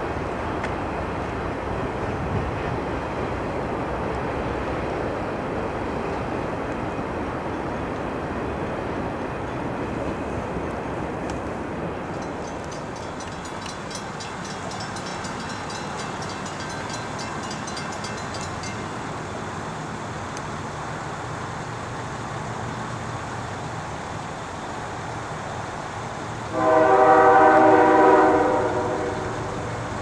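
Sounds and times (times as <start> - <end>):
train horn blast: 26.5 - 29.7.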